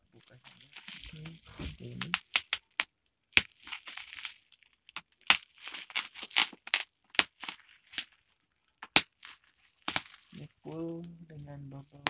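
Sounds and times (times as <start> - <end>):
bubble wrap crinkling and crackling: 0.1 - 12.0
scissors cutting bubble wrap: 0.6 - 8.2, 8.8 - 10.4.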